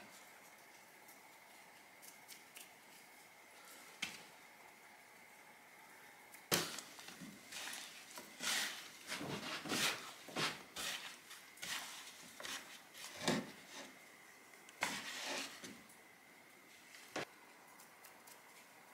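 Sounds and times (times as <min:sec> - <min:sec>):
hands rustling fish in flour: 0:06.5 - 0:13.8.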